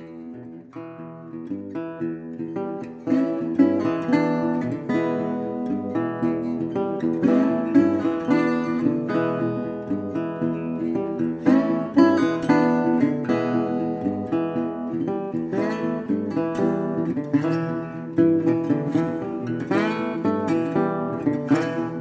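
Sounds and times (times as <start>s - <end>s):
acoustic guitar plucking and strumming: 0.0s - 22.0s.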